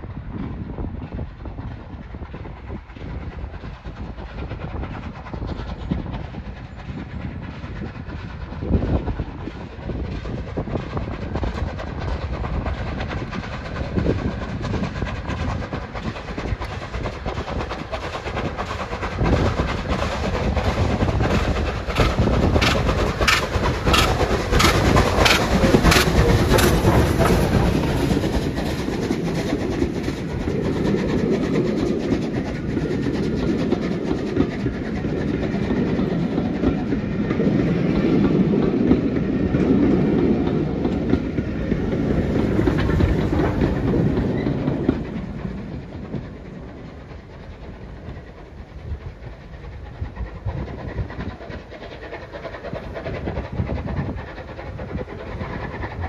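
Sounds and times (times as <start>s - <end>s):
steam train approaching: 0.0s - 56.0s
regular chuffing beat: 15.8s - 28.9s.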